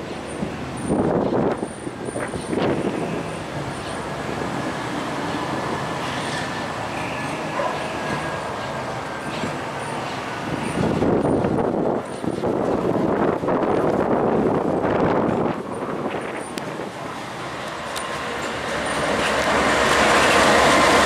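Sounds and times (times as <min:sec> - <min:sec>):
diesel locomotive engine running: 0:00.0 - 0:21.0.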